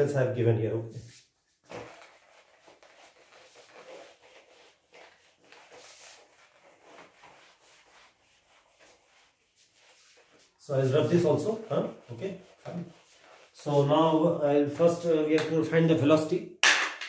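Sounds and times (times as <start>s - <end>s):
eraser rubbing on whiteboard: 1.0s - 13.9s.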